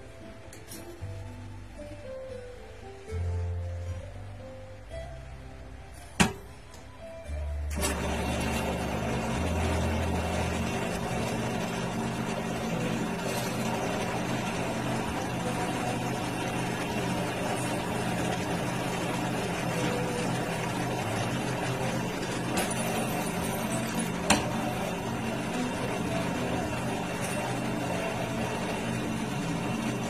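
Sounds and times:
electric motor humming: 7.7 - 30.0.

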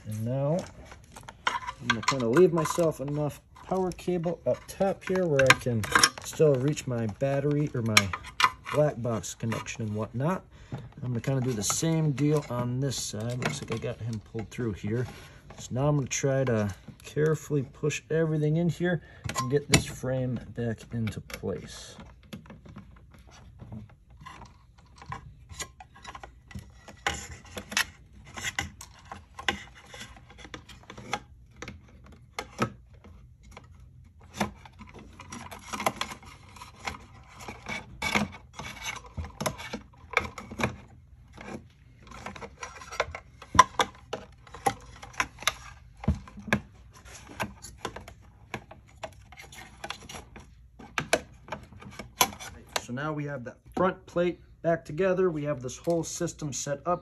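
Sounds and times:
metal parts rubbing and scraping: 0.0 - 10.0.

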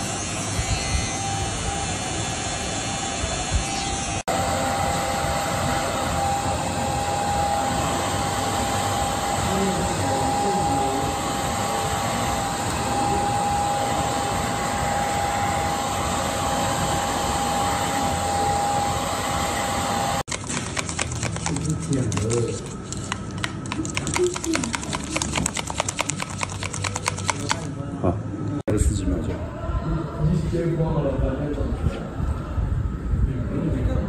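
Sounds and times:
hair dryer running: 0.0 - 20.3.

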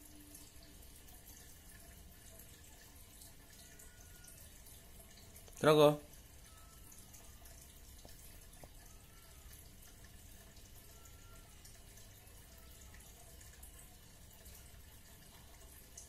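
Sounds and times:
faint ticks: 6.4 - 13.8.

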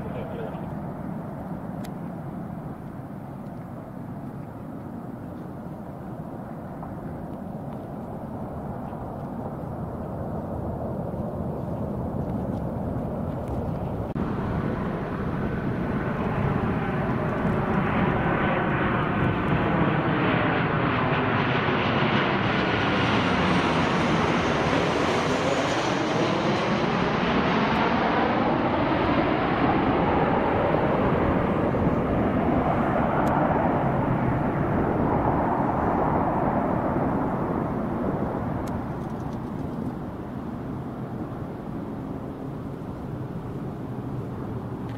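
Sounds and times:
jet airliner passing overhead: 0.0 - 44.9.

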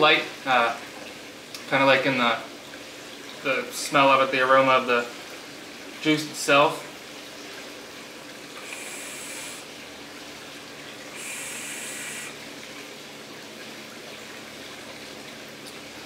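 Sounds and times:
e-cigarette atomizer hissing: 8.6 - 9.7, 11.1 - 12.4.

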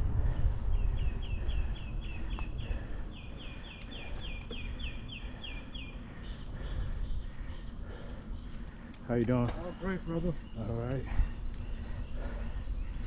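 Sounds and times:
wind rumble on microphone: 0.0 - 3.4.

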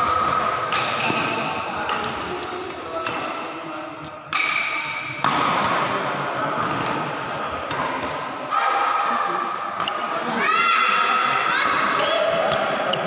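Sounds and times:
players' voices: 0.0 - 13.0
racket hitting shuttlecock: 0.2 - 3.5, 4.3 - 6.0.

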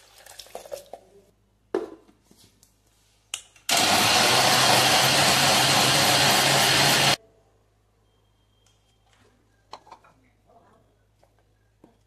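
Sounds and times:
mixer grinder running: 3.7 - 7.2.

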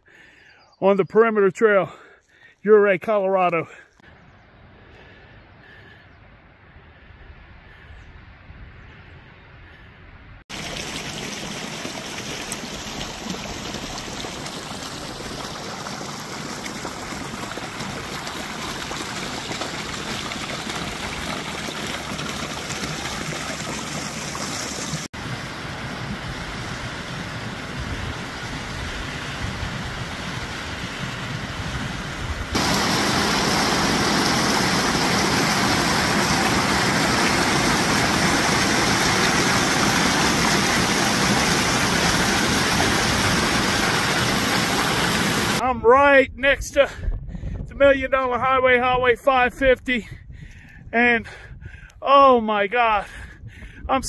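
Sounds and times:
creek water rushing over rocks: 10.5 - 31.5, 32.5 - 45.6.

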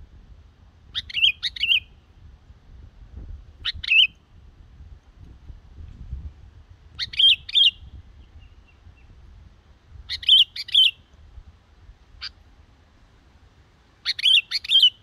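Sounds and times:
bird singing bubbly phrases: 0.9 - 1.9, 7.0 - 9.1, 10.1 - 11.1, 14.0 - 15.0.

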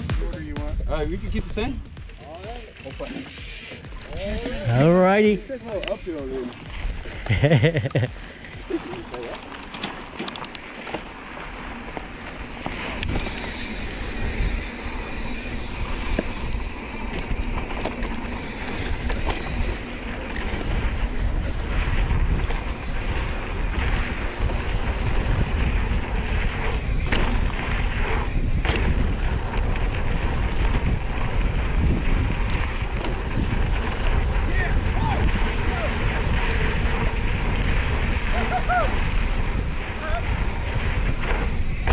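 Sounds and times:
bike clicks and rattles: 0.0 - 41.9
bike tyre rumble on dirt: 0.0 - 41.9
wind buffeting microphone: 11.5 - 41.9.

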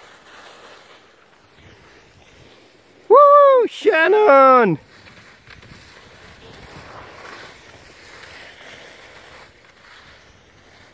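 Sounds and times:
wind on microphone: 5.3 - 8.0.

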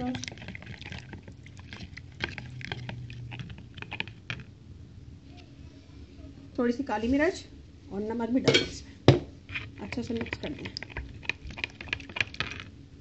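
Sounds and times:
metal spoon stirring in bowl: 0.0 - 4.5, 9.5 - 12.7
faint low hum: 0.0 - 13.0.

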